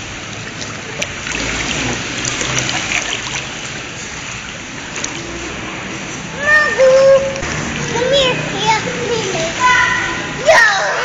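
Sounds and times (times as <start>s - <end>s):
pool water lapping and splashing: 0.0s - 11.0s.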